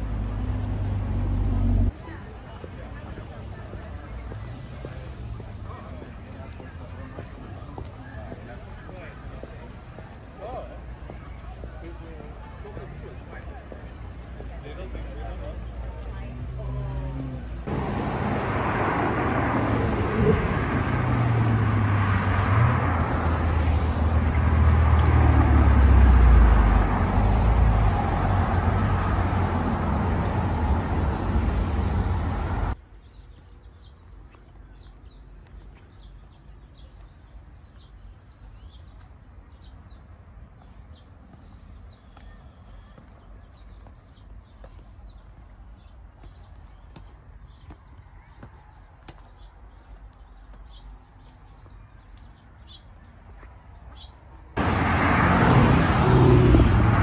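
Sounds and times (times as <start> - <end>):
small birds chirping: 28.6 - 54.7.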